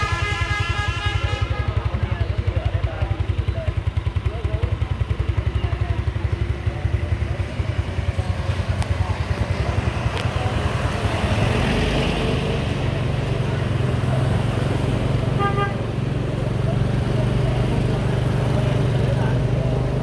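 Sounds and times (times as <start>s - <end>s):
small motorbike engine running: 1.4s - 11.2s.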